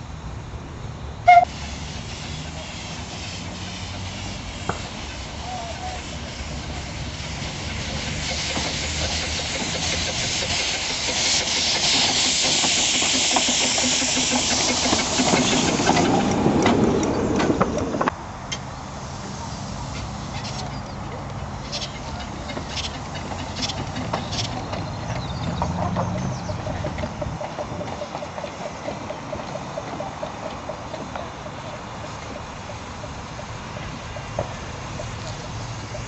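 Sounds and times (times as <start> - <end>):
locomotive steam hiss: 1.2 - 36.0
low engine hum: 13.6 - 36.0.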